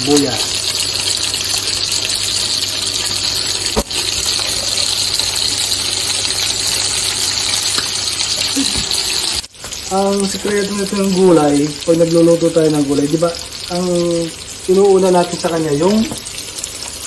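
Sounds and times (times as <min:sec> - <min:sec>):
meat and onions sizzling in oil: 0:00.0 - 0:17.0.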